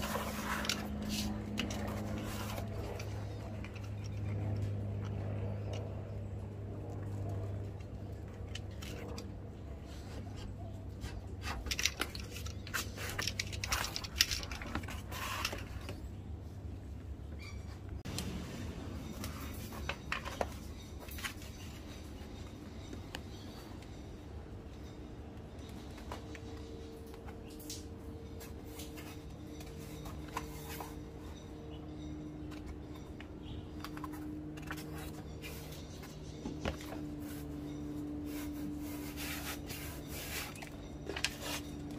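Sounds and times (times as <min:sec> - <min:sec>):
steady low hum: 0:00.0 - 0:41.9
paper rustling and clicks: 0:32.5 - 0:37.6.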